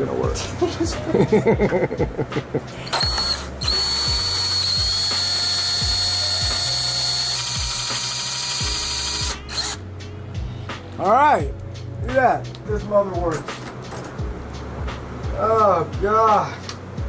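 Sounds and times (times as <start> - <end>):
cordless drill whining: 2.8 - 9.8.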